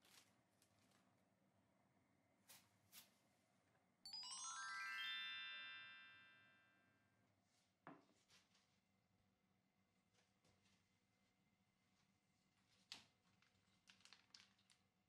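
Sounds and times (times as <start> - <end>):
sparkle chime: 4.1 - 7.0.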